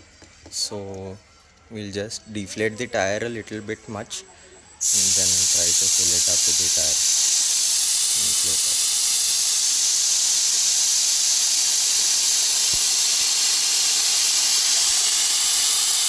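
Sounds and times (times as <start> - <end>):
air hissing from tyre valve: 4.8 - 16.0.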